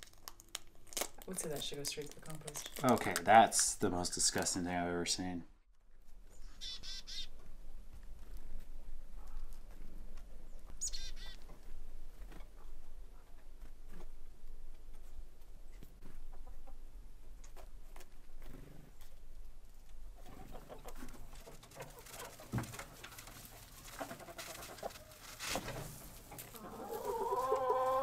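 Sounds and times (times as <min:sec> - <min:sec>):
chickens clucking: 0:16.0 - 0:17.6, 0:20.1 - 0:28.0.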